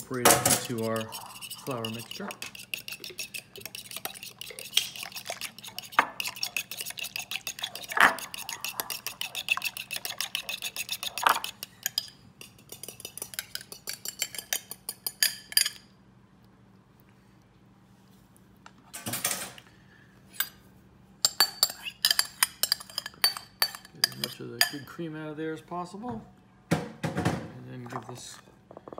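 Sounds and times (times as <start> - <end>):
fork beating against glass bowl: 0.2 - 15.8, 21.3 - 24.9.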